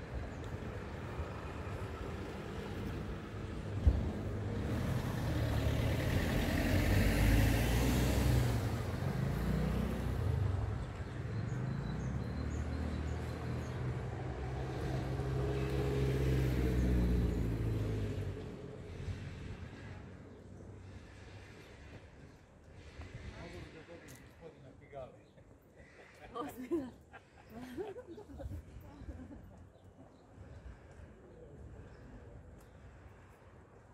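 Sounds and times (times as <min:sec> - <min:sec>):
vehicle engine passing: 0:04.0 - 0:20.1.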